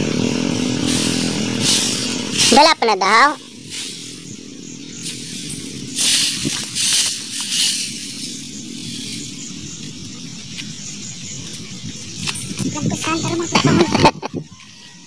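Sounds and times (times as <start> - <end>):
broom sweeping a dirt path: 0.0 - 15.0
steady low rumble: 0.0 - 15.0.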